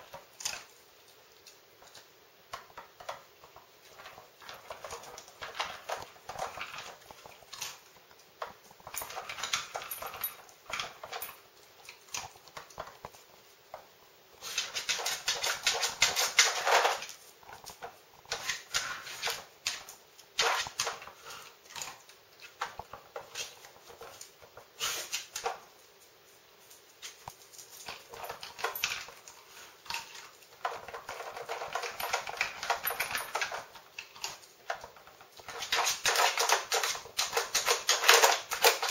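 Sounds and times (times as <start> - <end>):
plastic clicking and rattling: 27.9 - 38.9.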